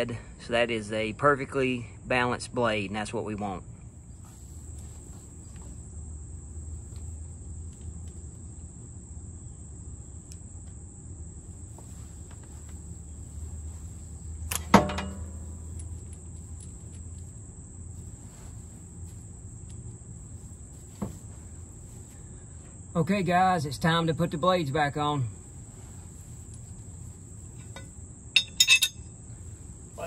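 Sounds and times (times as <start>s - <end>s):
insects chirring: 0.0s - 30.0s
sharp metallic clank: 14.5s - 15.7s, 27.6s - 29.1s.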